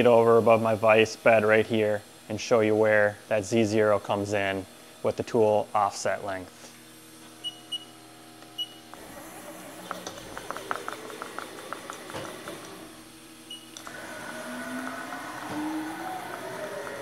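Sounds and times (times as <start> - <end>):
servo drives whining: 8.6 - 17.0.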